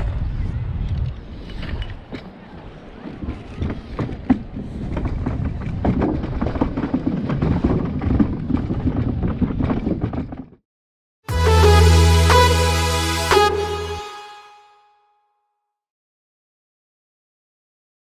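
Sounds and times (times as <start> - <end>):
wind buffeting microphone: 0.0 - 10.3
footsteps on wooden boards: 3.0 - 10.6.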